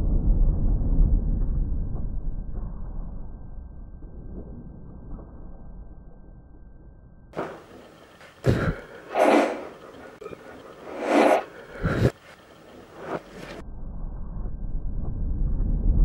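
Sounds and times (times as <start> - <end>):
compressed air blow gun blasts: 7.4 - 12.2.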